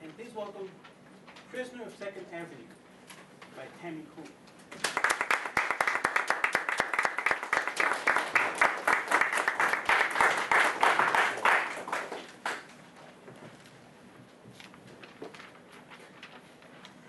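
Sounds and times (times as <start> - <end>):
audience applauding: 4.8 - 12.7.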